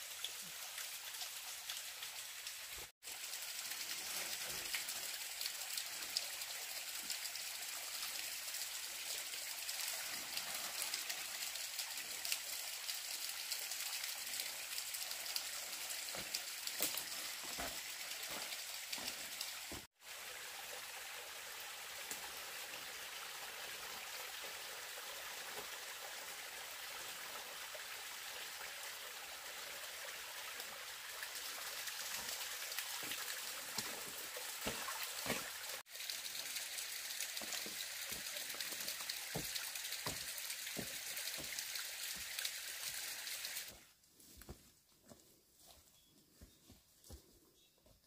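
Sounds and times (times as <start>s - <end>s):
water trickling down rock: 0.2s - 19.9s, 31.2s - 43.7s.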